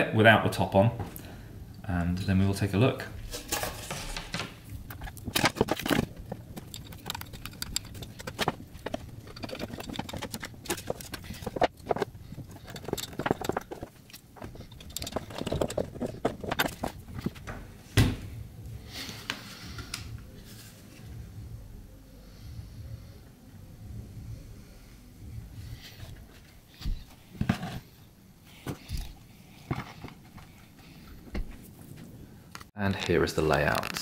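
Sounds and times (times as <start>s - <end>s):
parts clicking and knocking: 3.3s - 17.6s.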